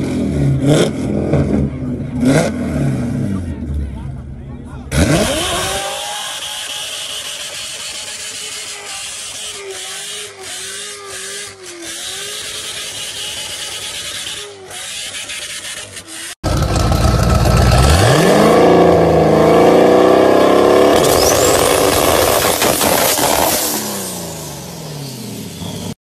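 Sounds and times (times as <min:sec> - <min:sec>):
car engine high revs: 0:00.0 - 0:03.6, 0:04.9 - 0:26.0
spinning tyres hissing: 0:05.1 - 0:16.8, 0:20.8 - 0:25.9.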